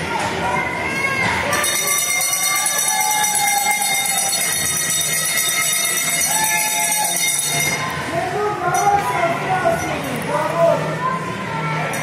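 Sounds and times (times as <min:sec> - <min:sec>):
high-pitched metallic ringing: 0:01.5 - 0:08.0.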